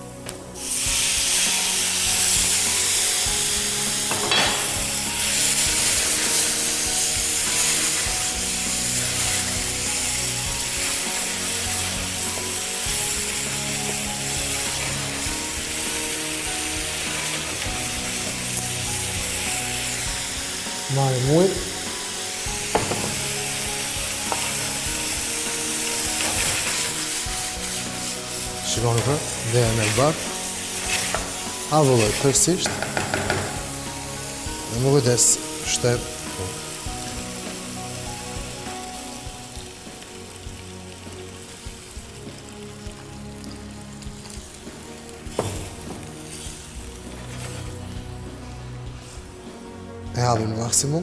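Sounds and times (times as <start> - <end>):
wine sizzling in hot pan: 0.0 - 51.0
wooden spoon knocking pan: 22.7 - 23.3, 32.6 - 33.6
wooden spoon stirring pan: 24.2 - 33.7, 45.2 - 49.5.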